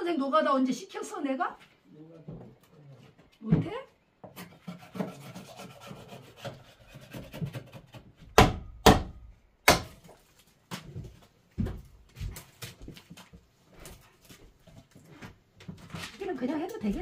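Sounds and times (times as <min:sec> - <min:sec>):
scraping on wood: 0:04.2 - 0:08.2
hammer striking wood: 0:08.3 - 0:10.1.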